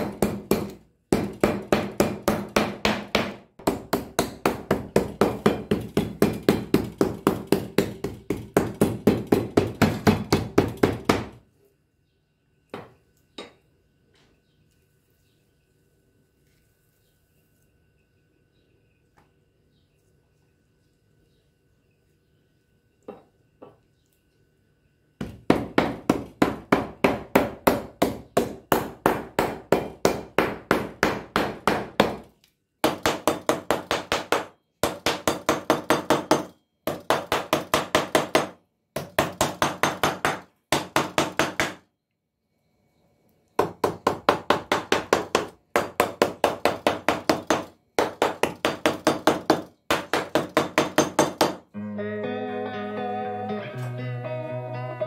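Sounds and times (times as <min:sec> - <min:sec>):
meat mallet pounding on cutting board: 0:00.0 - 0:11.4, 0:25.2 - 0:32.2, 0:32.8 - 0:41.8.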